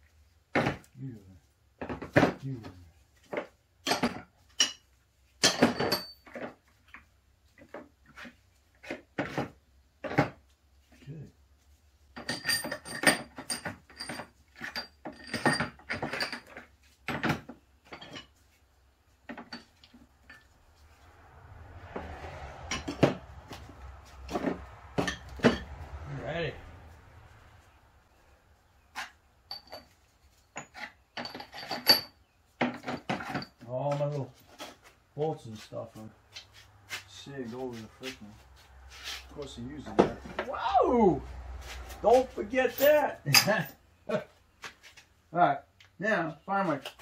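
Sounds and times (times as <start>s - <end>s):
metal tools clanking on workbench: 1.8s - 6.6s, 12.2s - 18.4s, 19.3s - 20.5s, 22.7s - 23.2s, 24.3s - 25.8s, 29.0s - 34.0s, 42.6s - 43.8s.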